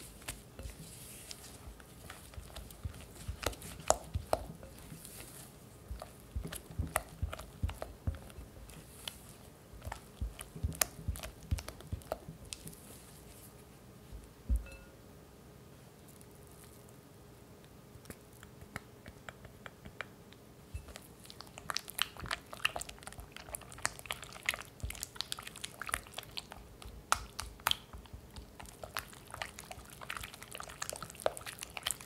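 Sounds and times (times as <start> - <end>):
spatula squishing and scraping paste: 0.0 - 13.7, 20.8 - 32.0.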